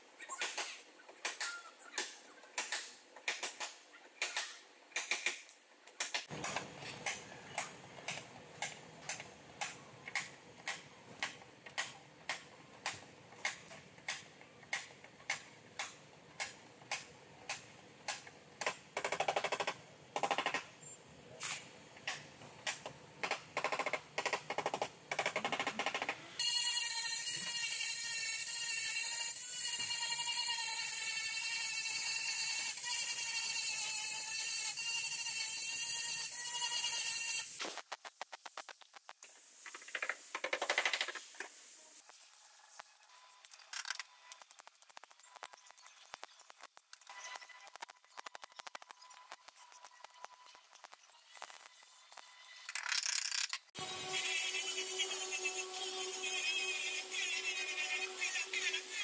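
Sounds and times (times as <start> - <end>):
power tool whine: 53.8 - 59.0.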